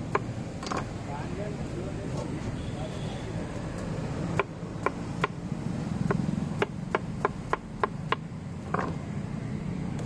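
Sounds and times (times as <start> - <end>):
knife chopping watermelon: 3.8 - 5.4, 6.0 - 9.0.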